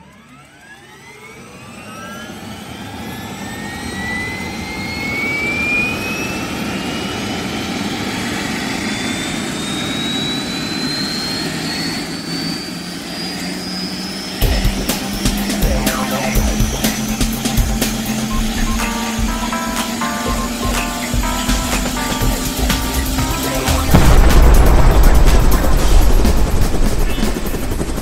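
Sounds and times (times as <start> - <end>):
jet engine whine rising: 0.0 - 28.0
rushing jet noise: 14.1 - 28.0.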